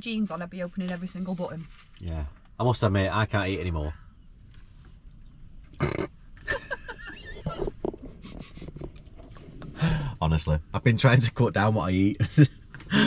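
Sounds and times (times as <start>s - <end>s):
person burping: 5.8s - 6.2s.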